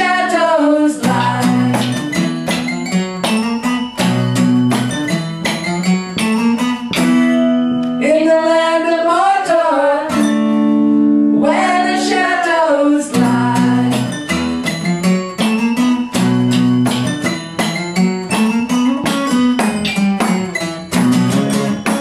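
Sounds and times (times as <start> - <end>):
person singing: 0.0 - 2.0, 8.0 - 10.3, 11.4 - 14.2
acoustic guitar strumming: 0.0 - 22.0.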